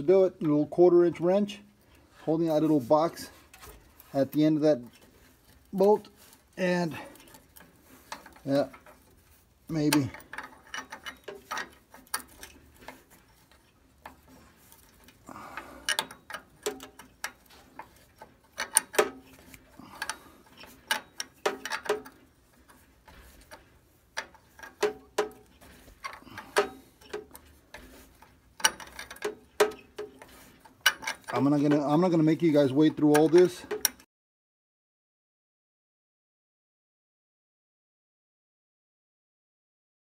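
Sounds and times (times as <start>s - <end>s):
wrench clicking on metal bolt: 9.7s - 13.0s, 14.0s - 23.6s, 24.2s - 32.1s, 32.9s - 34.0s.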